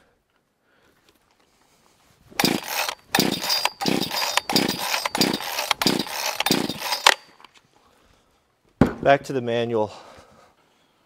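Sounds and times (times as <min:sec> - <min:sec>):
chainsaw starter cord pulls: 0:02.4 - 0:07.6.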